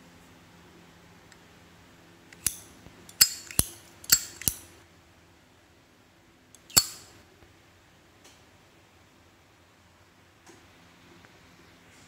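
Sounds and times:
lighter lid clicking: 6.7s - 7.1s.

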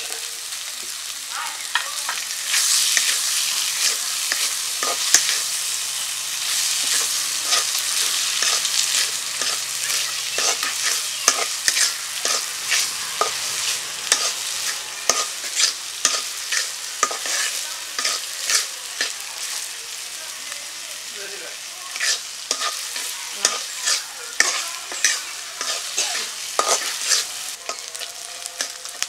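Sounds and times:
fish sizzling in oil: 0.0s - 29.0s
metal spatula scraping iron pan: 6.5s - 19.1s, 21.9s - 28.8s.

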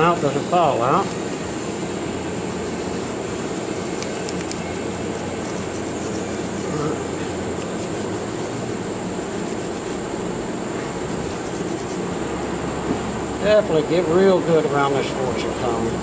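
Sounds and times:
rushing background noise: 1.1s - 16.0s
brush scrubbing metal: 4.0s - 10.2s, 10.9s - 12.1s.

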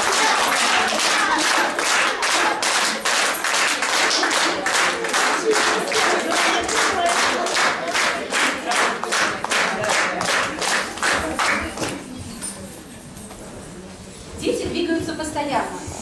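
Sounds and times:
audience clapping in rhythm: 0.0s - 12.1s.

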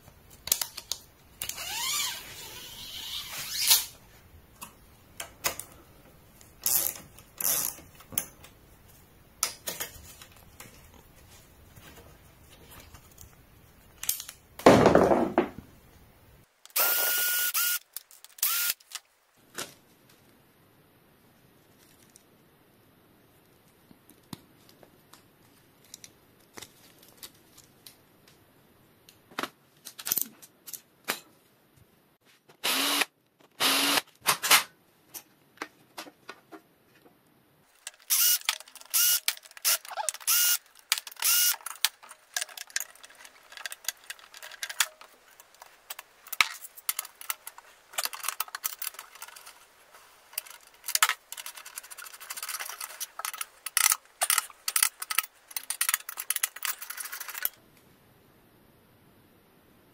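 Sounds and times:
metallic clicks and rattles of tools: 37.8s - 57.6s.

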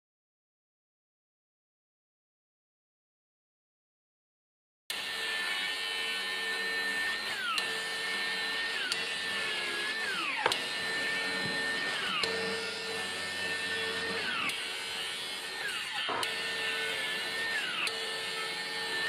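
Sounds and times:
circular saw motor whine: 4.9s - 19.0s.

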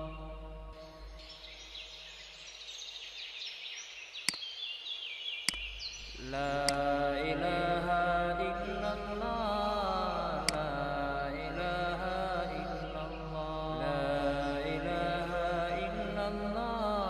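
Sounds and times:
chant-like vocal music: 0.0s - 1.8s, 6.1s - 17.0s
sharp clicks: 5.4s - 6.9s, 10.4s - 10.7s.

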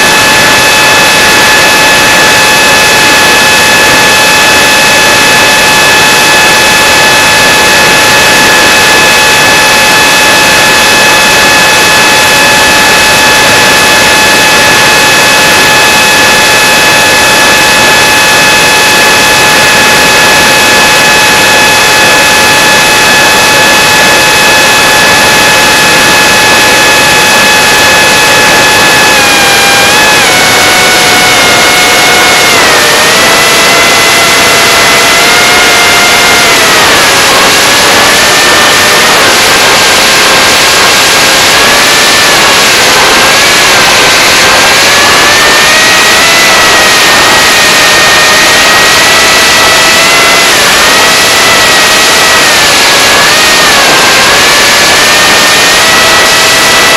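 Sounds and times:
electric motor high whine: 0.0s - 56.9s
rush of air noise: 0.0s - 56.9s.

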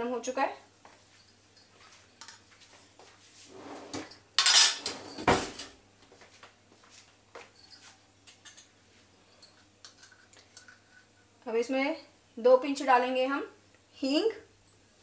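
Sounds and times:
kitchen utensils clattering: 3.5s - 5.8s.

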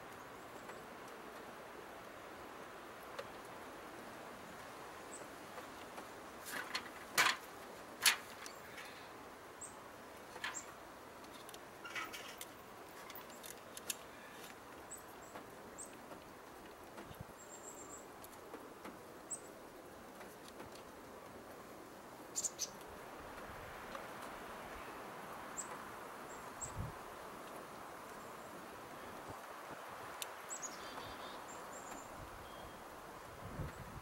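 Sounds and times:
faint bird chirps: 30.5s - 32.9s.

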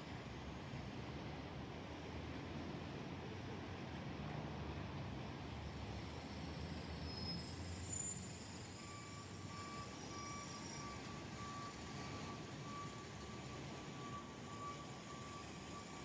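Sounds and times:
reversing alarm beeping: 7.3s - 16.0s.

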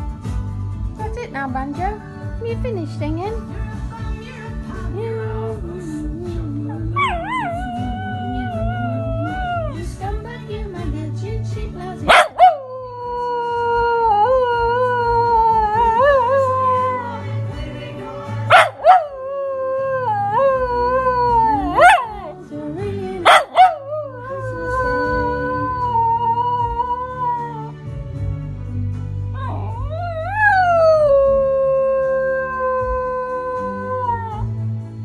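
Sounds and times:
christmas song music: 0.0s - 33.6s
dog howling: 6.9s - 9.8s, 12.1s - 17.2s, 18.5s - 22.4s, 23.3s - 27.8s, 29.4s - 34.5s.

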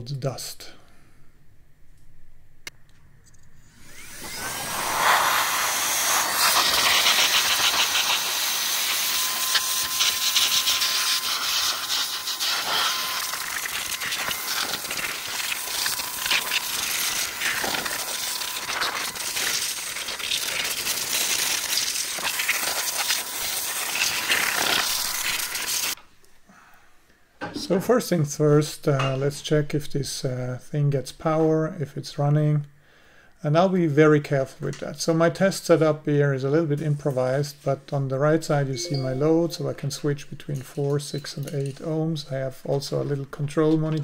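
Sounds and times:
electric air blower running: 3.6s - 26.0s.

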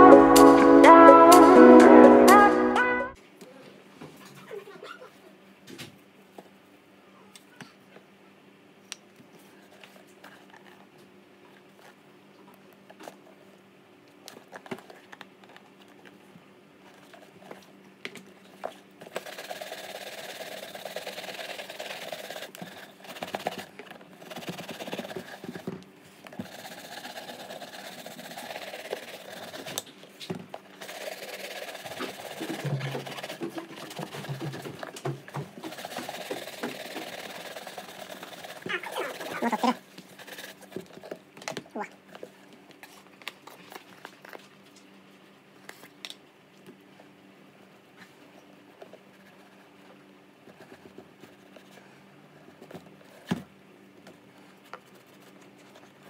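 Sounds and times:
shoe brush scrubbing leather: 19.1s - 25.6s, 26.4s - 29.8s, 30.8s - 34.8s, 35.6s - 40.8s.

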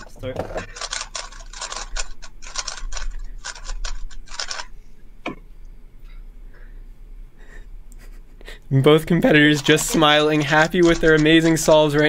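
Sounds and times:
puzzle cube plastic clicks: 9.5s - 12.0s.

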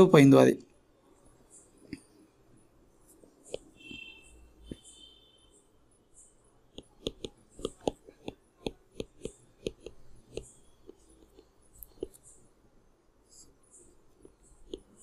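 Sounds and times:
stylus tapping on tablet screen: 6.7s - 12.4s, 13.8s - 15.0s.

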